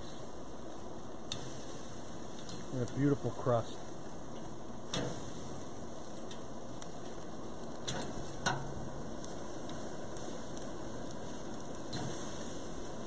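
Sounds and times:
meat sizzling on a grill: 0:00.0 - 0:13.0
fork clicking on grill grate: 0:01.3 - 0:01.6, 0:04.4 - 0:05.2, 0:07.8 - 0:08.8, 0:11.9 - 0:12.2.

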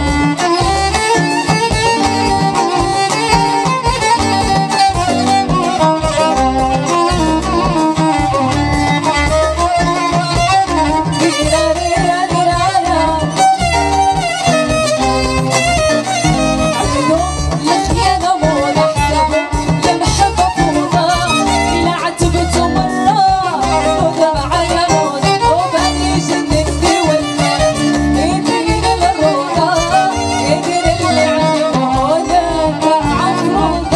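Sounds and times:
violin melody: 0:00.0 - 0:33.9
woman singing: 0:09.0 - 0:14.5, 0:16.3 - 0:33.9.

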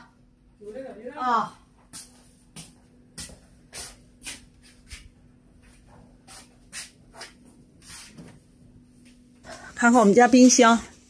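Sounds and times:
footsteps scuffing on concrete: 0:01.8 - 0:08.3.

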